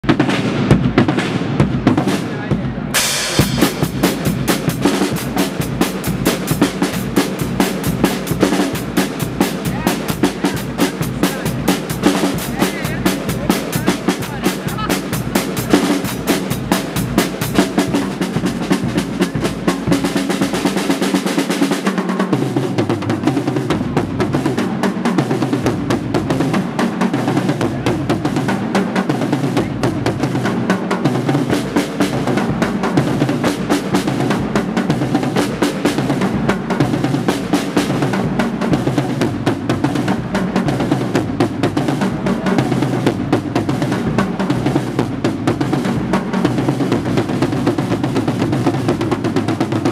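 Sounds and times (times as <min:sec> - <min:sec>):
drum kit beat: 0:00.0 - 0:49.9
brass and reeds playing: 0:02.9 - 0:22.0.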